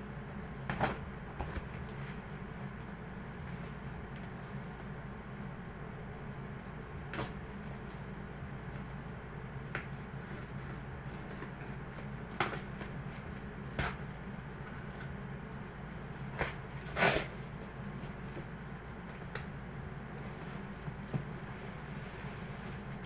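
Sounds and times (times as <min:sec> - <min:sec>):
steady low hum: 0:00.0 - 0:23.0
cardboard tearing: 0:16.4 - 0:17.4.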